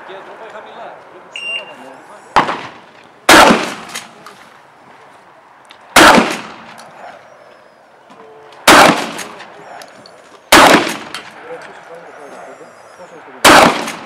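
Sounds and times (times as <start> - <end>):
loud shotgun shots: 2.4 - 4.2, 5.9 - 6.8, 8.6 - 9.5, 10.5 - 11.5, 13.4 - 14.0.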